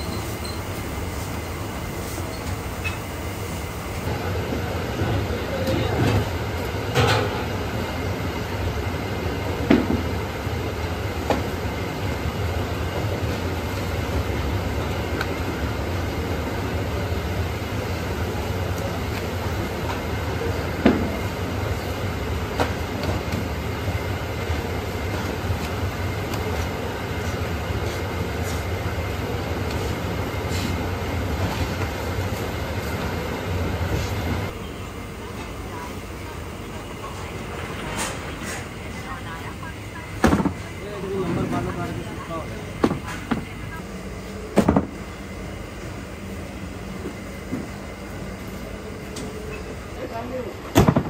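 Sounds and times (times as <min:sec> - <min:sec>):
gas burner roaring: 0:00.0 - 0:36.9.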